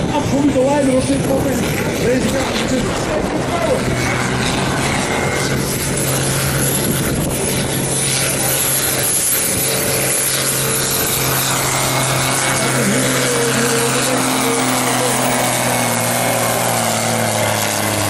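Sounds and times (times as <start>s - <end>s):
tractor diesel engine under load: 9.6s - 18.0s.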